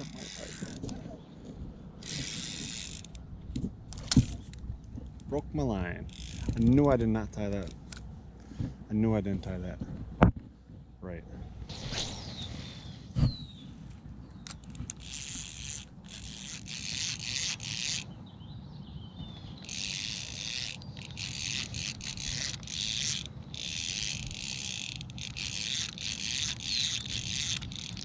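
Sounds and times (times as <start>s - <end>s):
spinning reel whirring rattle: 0.0s - 1.0s, 2.0s - 3.2s, 6.1s - 6.8s, 14.9s - 18.1s, 19.6s - 28.0s.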